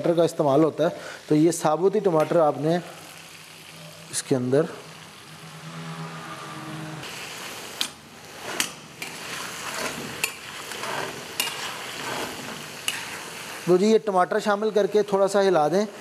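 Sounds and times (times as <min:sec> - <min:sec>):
chicken sizzling in hot oil: 0:00.1 - 0:05.7, 0:07.0 - 0:15.5
metal spoon clinking on pan: 0:11.4 - 0:11.7.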